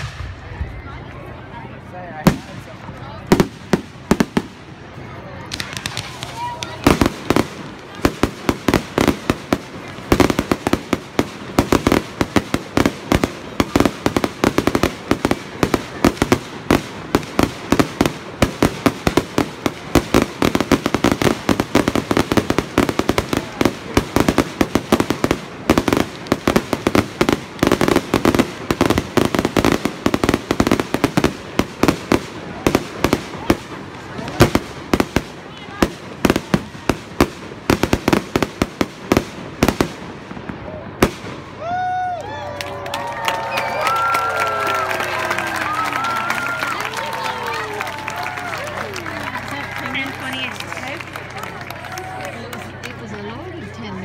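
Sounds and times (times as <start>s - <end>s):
fireworks popping and crackling: 0.0s - 1.1s, 2.1s - 42.2s, 42.8s - 54.0s.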